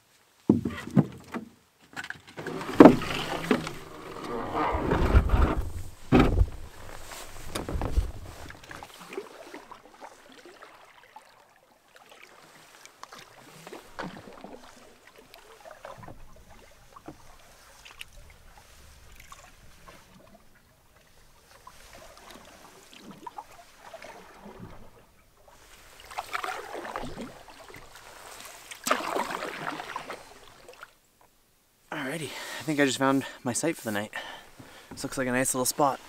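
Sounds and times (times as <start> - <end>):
knocks against canoe hull: 0.5 - 1.5, 2.4 - 8.7
water trickling and splashing: 2.3 - 4.6, 5.6 - 31.1
paddle dipping into water: 2.3 - 31.0, 34.2 - 36.0.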